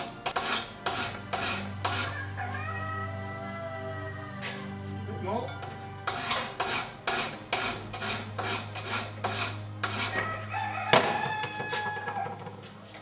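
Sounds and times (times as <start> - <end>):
file rasping on steel: 0.0 - 2.2, 6.1 - 10.2.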